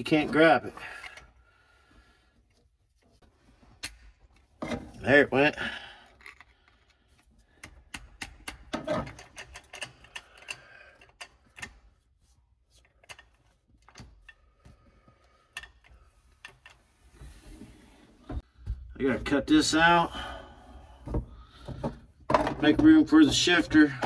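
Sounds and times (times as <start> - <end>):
hand tools tapping on metal: 7.6 - 11.8.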